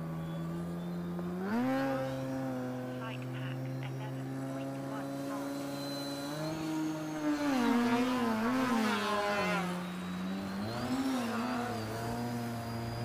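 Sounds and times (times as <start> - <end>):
model plane engine drone: 0.0 - 13.0.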